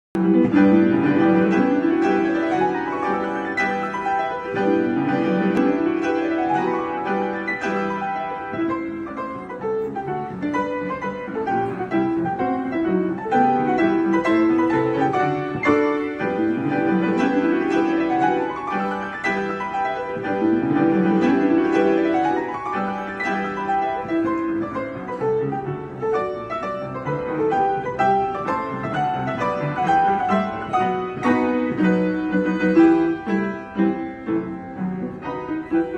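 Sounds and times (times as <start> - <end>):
piano duet: 0.1 - 35.9.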